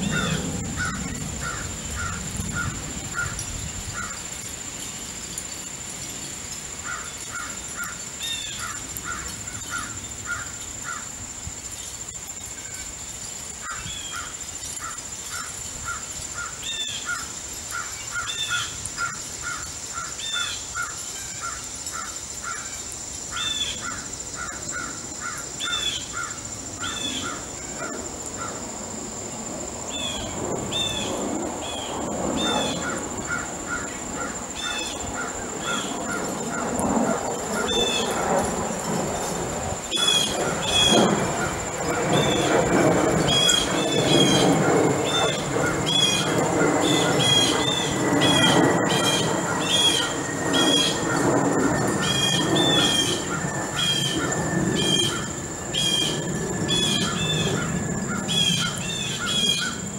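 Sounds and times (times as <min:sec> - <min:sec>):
high-pitched whine: 0:00.0 - 0:02.7, 0:29.9 - 0:59.9
crows cawing: 0:00.1 - 0:04.3, 0:06.8 - 0:11.1, 0:13.6 - 0:22.7, 0:23.3 - 0:27.5, 0:32.4 - 0:36.8, 0:43.3 - 0:59.8.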